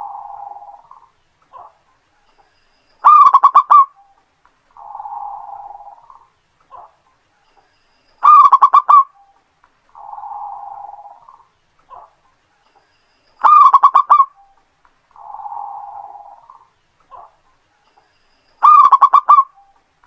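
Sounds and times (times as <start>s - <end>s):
dove cooing: 0.0s - 1.8s, 3.0s - 4.2s, 4.8s - 7.0s, 8.2s - 9.3s, 9.9s - 12.2s, 13.4s - 14.5s, 15.1s - 17.4s, 18.6s - 19.8s.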